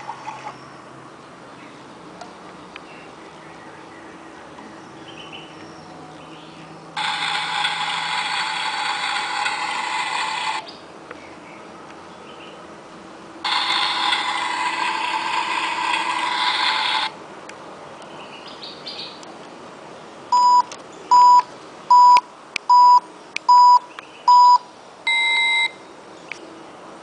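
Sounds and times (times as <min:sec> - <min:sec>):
higher-pitched beep: 0:20.4 - 0:25.8
short even beeps: 0:20.4 - 0:25.8.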